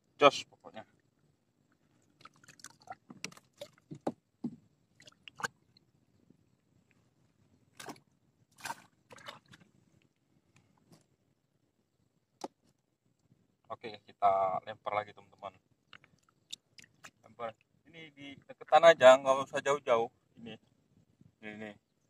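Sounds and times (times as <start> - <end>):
hands handling fish and tackle: 1.6 - 11.4, 12.3 - 13.4, 15.8 - 17.7.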